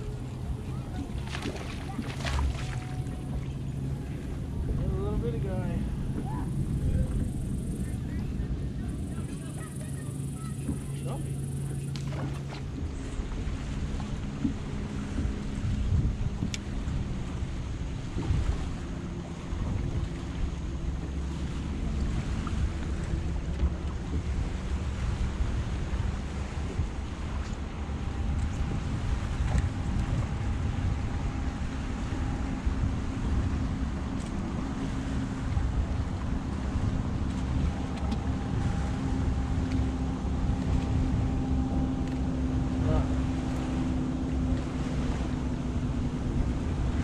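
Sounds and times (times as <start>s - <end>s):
electric trolling motor hum: 0.0s - 47.0s
water lapping against boat hull: 0.0s - 47.0s
wind buffeting microphone: 0.0s - 47.0s.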